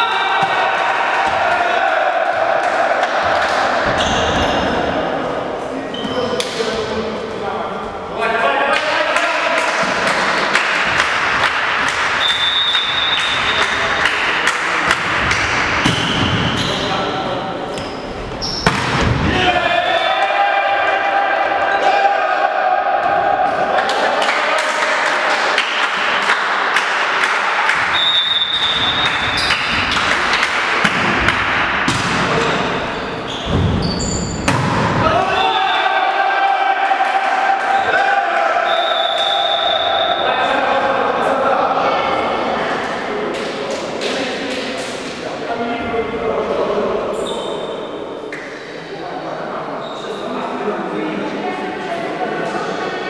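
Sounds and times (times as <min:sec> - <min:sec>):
sports hall noise: 0:00.0 - 0:53.0
referee's whistle: 0:12.2 - 0:13.8, 0:27.9 - 0:29.6, 0:38.6 - 0:40.3
volleyball knocks and slaps: 0:14.9 - 0:16.5, 0:18.6 - 0:19.3, 0:30.8 - 0:32.4, 0:34.4 - 0:35.0.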